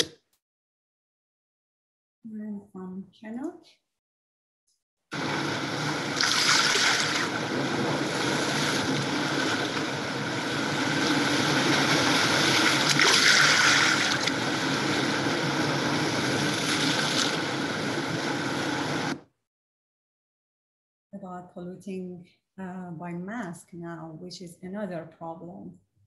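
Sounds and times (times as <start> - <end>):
sea waves rushing: 5.1 - 19.2.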